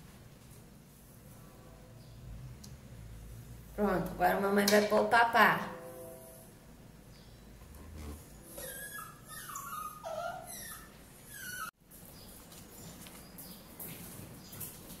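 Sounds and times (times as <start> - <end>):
dog whining: 8.1 - 11.8.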